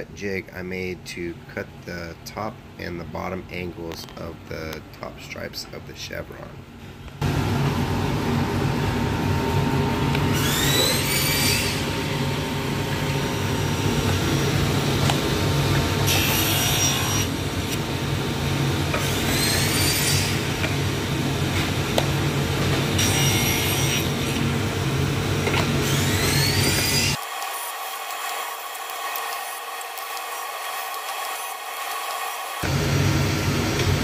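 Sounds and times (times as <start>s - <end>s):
table saw motor running: 7.2s - 33.3s
saw blade cutting wood: 10.3s - 11.9s, 16.0s - 17.8s, 18.9s - 20.8s, 22.6s - 24.5s, 25.5s - 32.7s.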